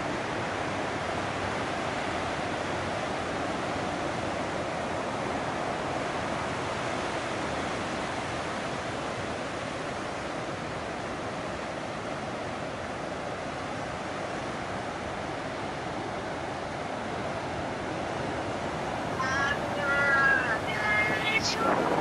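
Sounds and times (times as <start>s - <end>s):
waves breaking on shore: 0.0s - 22.0s.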